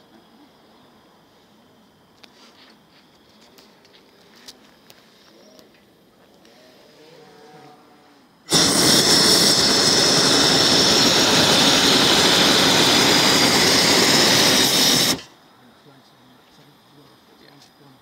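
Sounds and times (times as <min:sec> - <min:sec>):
propane burner roaring: 0:08.4 - 0:15.4.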